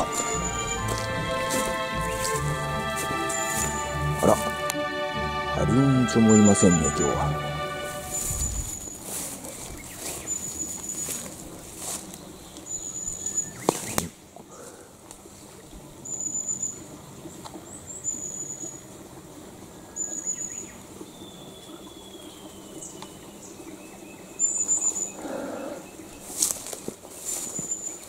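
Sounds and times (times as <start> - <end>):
falling whistle: 0.0 - 1.9
thin high-pitched call: 0.0 - 2.4, 7.9 - 9.0
footsteps in wet undergrowth: 0.0 - 15.8, 26.0 - 28.0.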